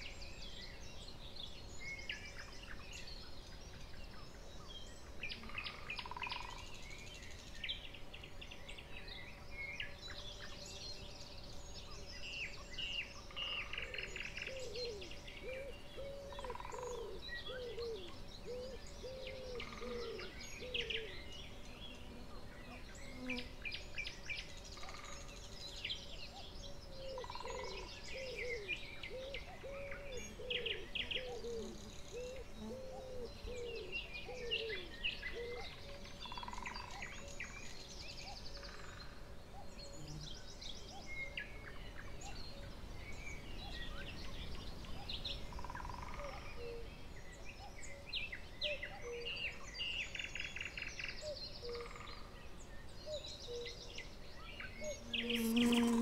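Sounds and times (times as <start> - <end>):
wild birds singing and calling: 0.0 - 56.0
lower repeated bird calls: 13.0 - 23.6, 26.4 - 37.8.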